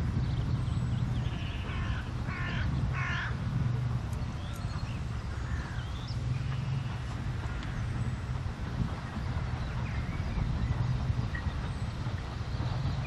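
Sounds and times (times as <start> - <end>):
steady low rumble: 0.0 - 13.0
crow cawing: 1.4 - 3.3.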